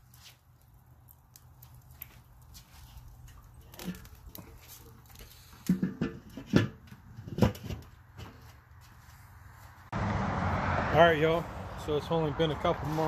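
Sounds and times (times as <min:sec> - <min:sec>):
grill lid knocking and clanking: 0:05.6 - 0:08.4.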